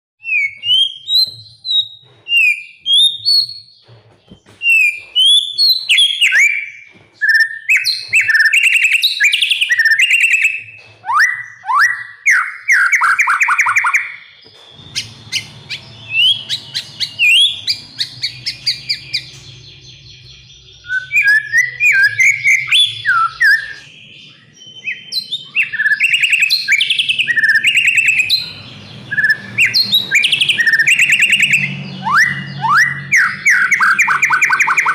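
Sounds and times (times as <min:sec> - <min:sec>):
songbird singing whistles and trills: 0:00.2 - 0:34.9.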